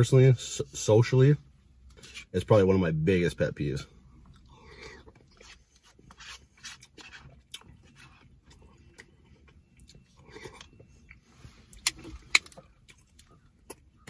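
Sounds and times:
chewing: 0:04.2 - 0:14.0.

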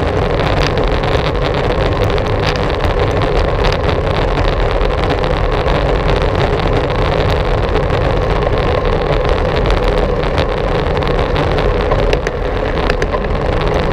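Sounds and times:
bicycle rolling noise: 0:00.0 - 0:13.9.

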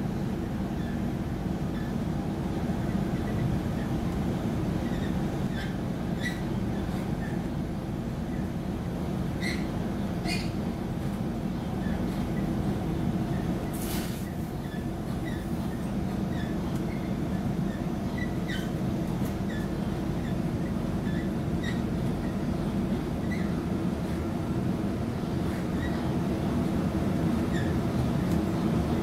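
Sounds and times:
train wheels rumbling on track: 0:00.0 - 0:29.0
brief hiss: 0:13.8 - 0:14.3.

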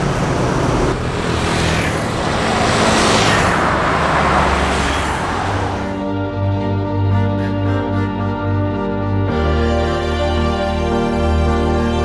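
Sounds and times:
vehicles passing on highway: 0:00.0 - 0:07.4
background music: 0:05.3 - 0:12.0.

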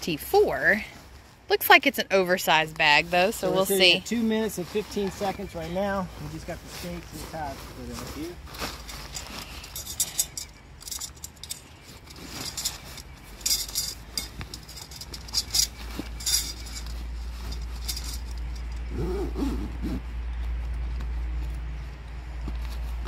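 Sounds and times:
nylon tent fabric rustling: 0:00.1 - 0:23.0
low steady rumble: 0:05.5 - 0:23.0
light metallic clinks: 0:08.8 - 0:18.9.

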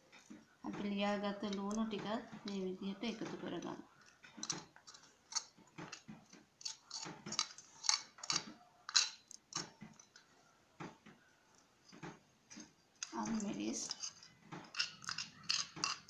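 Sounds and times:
spoon scraping and tapping bowl: 0:13.0 - 0:16.0.

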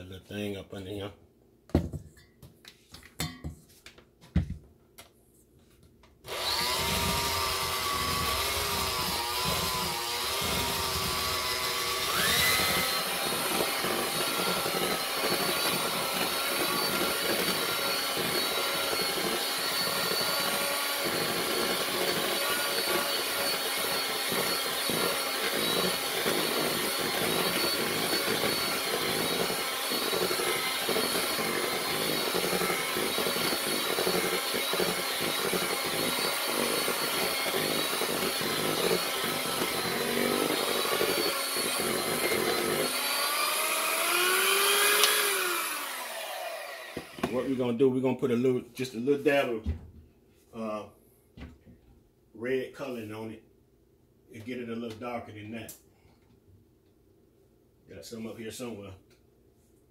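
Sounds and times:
electric hand mixer whirring: 0:06.3 - 0:47.6.

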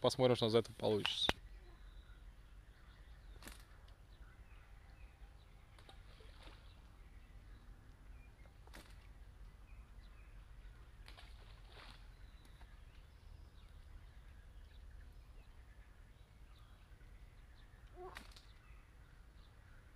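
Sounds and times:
faint bird chirps: 0:01.1 - 0:19.9
faint sharp clicks: 0:03.4 - 0:04.0.

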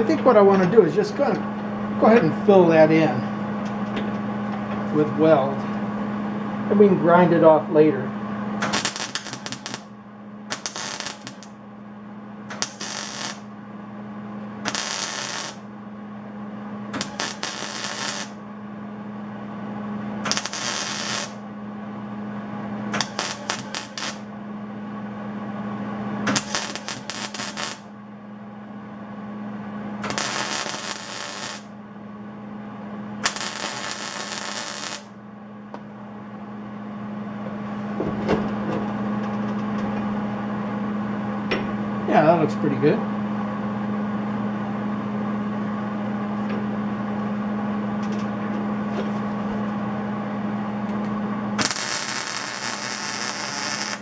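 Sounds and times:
welding arc crackling: 0:08.6 - 0:09.9, 0:10.5 - 0:11.6, 0:12.5 - 0:13.5, 0:14.6 - 0:15.7, 0:16.9 - 0:18.4, 0:20.2 - 0:21.4, 0:22.9 - 0:24.3, 0:26.3 - 0:27.9, 0:30.0 - 0:31.8, 0:33.2 - 0:35.2, 0:51.6 - 0:54.0.

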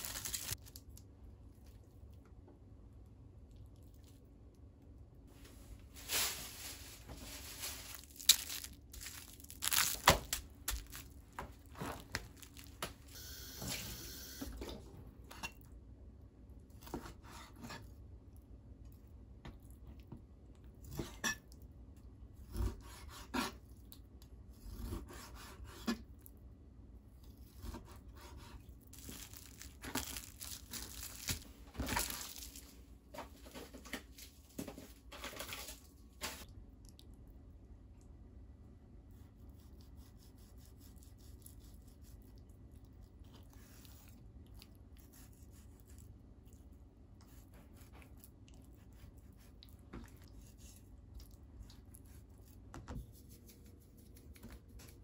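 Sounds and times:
cling film rustling and tearing: 0:00.0 - 0:00.9, 0:05.9 - 0:13.1, 0:29.0 - 0:32.8.

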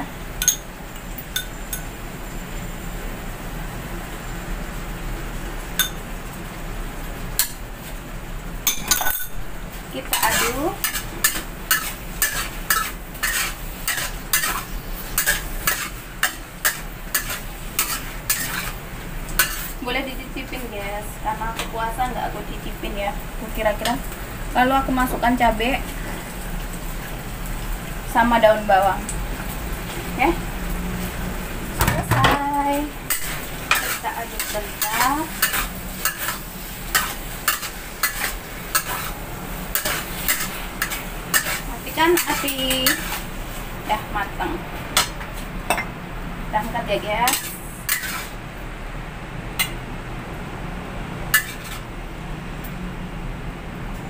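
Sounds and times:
food sizzling: 0:00.0 - 0:50.4, 0:51.0 - 0:52.2
metal spatula scraping wok: 0:10.0 - 0:18.8, 0:19.4 - 0:19.8, 0:33.1 - 0:43.6, 0:47.3 - 0:48.4, 0:51.3 - 0:51.8.

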